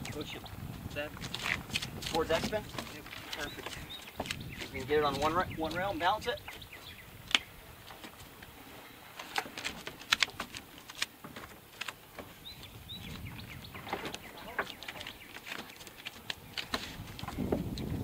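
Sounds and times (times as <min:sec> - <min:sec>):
wooden knocks and clicks: 0:01.2 - 0:05.8, 0:13.1 - 0:17.9
bird chirps: 0:03.4 - 0:07.5, 0:12.3 - 0:16.6.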